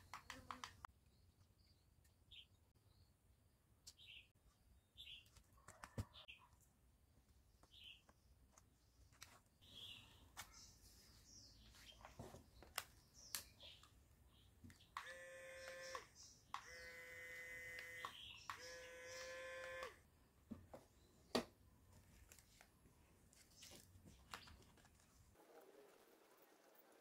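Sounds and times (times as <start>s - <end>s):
small motor whining: 15.0s - 20.0s.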